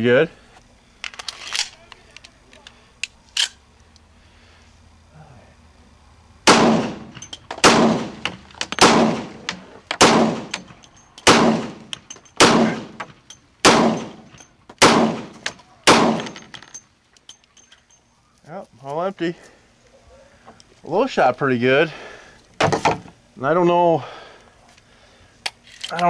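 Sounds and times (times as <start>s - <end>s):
pistol shots with echo: 6.5s - 11.8s, 12.4s - 13.0s, 13.6s - 14.2s, 14.8s - 16.4s.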